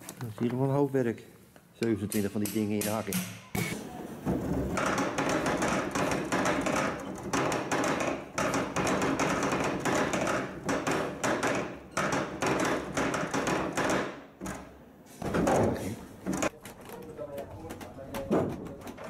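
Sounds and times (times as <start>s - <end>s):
wooden stampers knocking: 4.2s - 19.0s.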